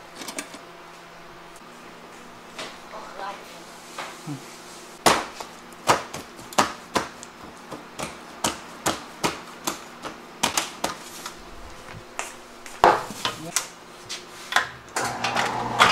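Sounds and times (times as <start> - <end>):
hands slapping dough in steel pan: 5.0 - 11.0.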